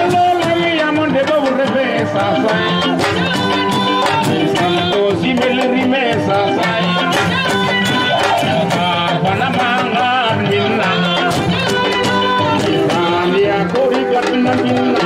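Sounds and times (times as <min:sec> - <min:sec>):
hand drums beating: 0:00.0 - 0:15.0
woman singing into microphone: 0:01.0 - 0:15.0.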